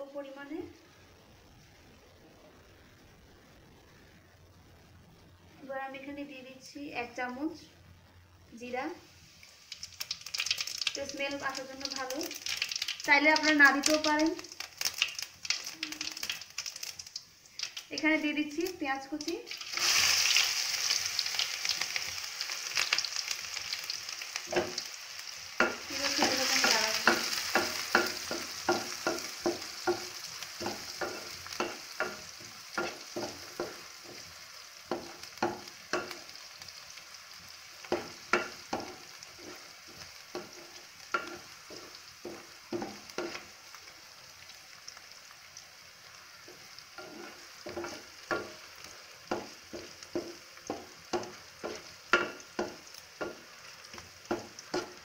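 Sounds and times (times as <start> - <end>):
onion sizzling in hot oil: 0.0 - 55.0
wooden spatula scraping a pan: 25.6 - 34.3, 37.8 - 43.5, 46.5 - 55.0.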